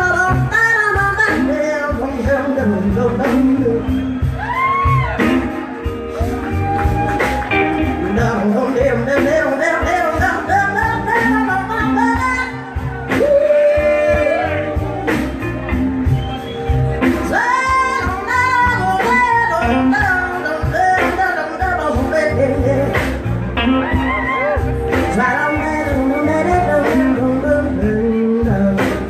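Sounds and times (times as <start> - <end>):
woman singing: 0.0 - 5.0, 7.8 - 14.8, 17.0 - 23.2, 23.9 - 29.0
bass guitar: 0.0 - 29.0
drums: 0.0 - 29.0
electric guitar: 0.0 - 29.0.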